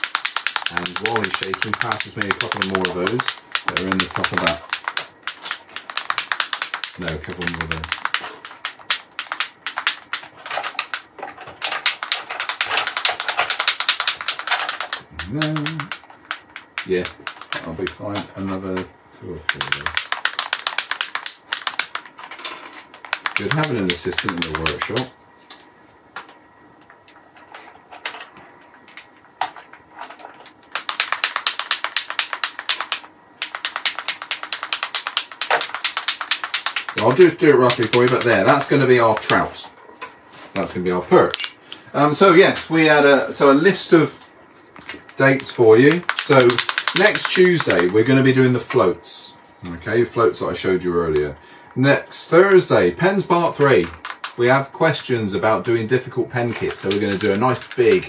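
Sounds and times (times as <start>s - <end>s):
small hard objects clicking and rattling: 0.0s - 18.0s, 19.5s - 25.1s, 29.5s - 39.5s, 45.1s - 48.0s, 53.6s - 54.4s.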